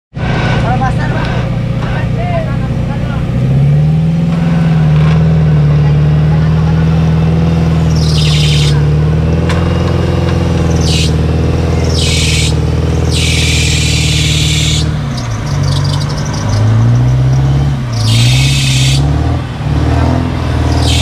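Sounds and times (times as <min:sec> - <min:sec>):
off-road vehicle engine revving: 0:00.1 - 0:21.0
loud hiss bursts: 0:11.9 - 0:14.9, 0:18.0 - 0:19.0.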